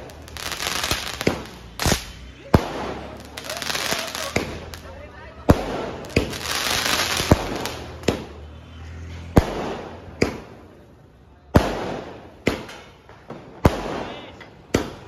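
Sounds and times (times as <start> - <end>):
fireworks bangs: 0.0 - 8.6, 9.3 - 10.8, 11.5 - 15.0.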